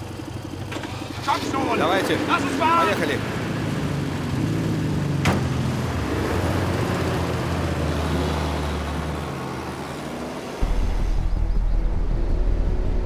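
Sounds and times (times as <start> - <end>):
vehicle engines running: 0.0 - 13.0
deep engine rumble: 10.6 - 13.0.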